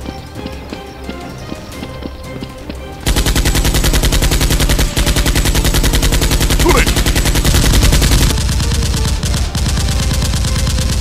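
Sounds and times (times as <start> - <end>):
machine-gun fire: 3.1 - 11.0
toy blasters firing: 3.1 - 11.0.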